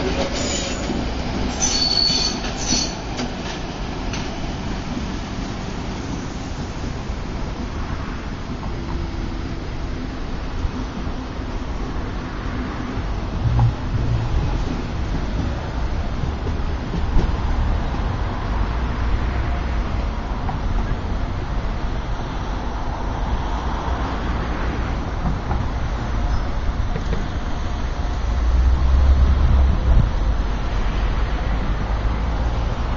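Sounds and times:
traffic rumble: 0.0 - 32.9
train rolling over tracks: 0.0 - 32.9.

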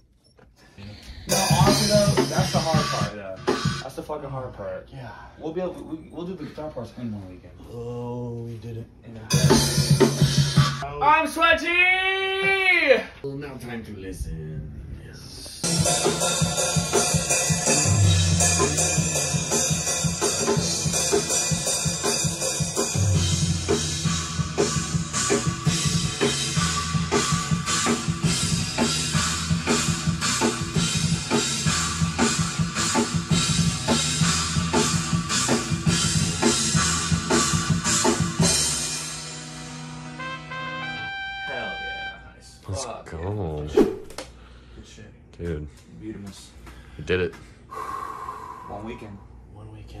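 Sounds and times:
heavy metal drums: 1.2 - 4.1, 9.3 - 10.8, 15.6 - 40.1
low guitar and bass notes: 1.3 - 3.8, 15.6 - 42.2.

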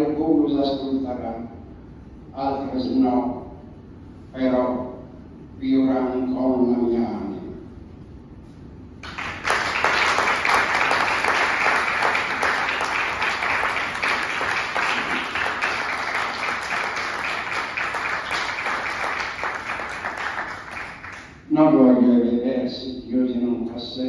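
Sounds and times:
audience applauding: 9.0 - 21.4.

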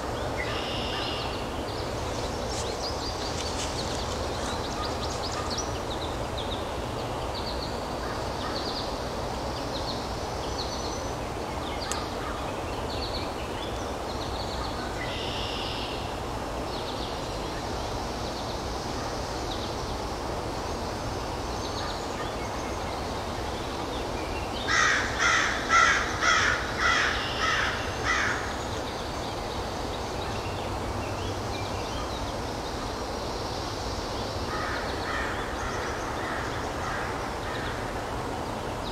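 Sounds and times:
outdoor background noise: 0.0 - 38.9
small birds chirping: 0.2 - 7.8.

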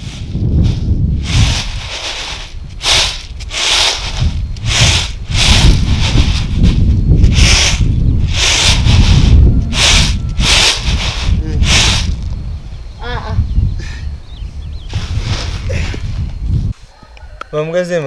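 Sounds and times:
grain swishing in winnowing basket: 0.0 - 6.7, 7.3 - 12.2.

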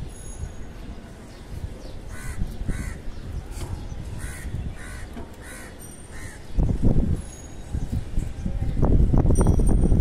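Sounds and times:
crow cawing: 2.1 - 3.0, 4.2 - 6.4.

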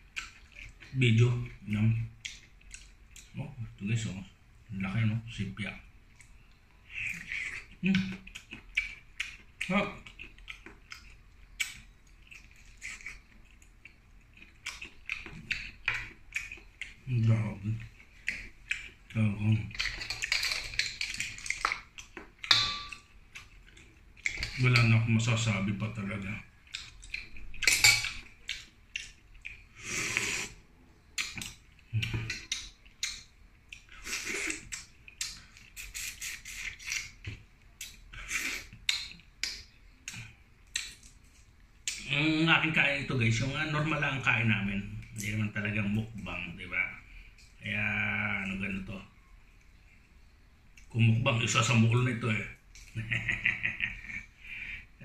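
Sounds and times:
wet smacking mouth sounds: 6.9 - 13.7, 31.2 - 42.0
mouth sucking and slurping: 29.7 - 30.7, 33.9 - 34.8, 35.5 - 37.2, 38.1 - 38.9.

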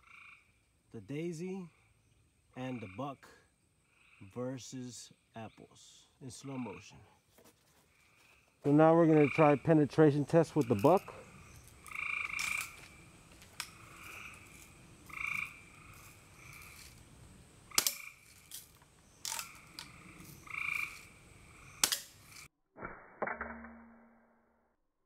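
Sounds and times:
frog croaking: 0.0 - 7.1, 7.9 - 22.5
air rifle cracks: 17.8 - 18.6, 21.8 - 22.2.

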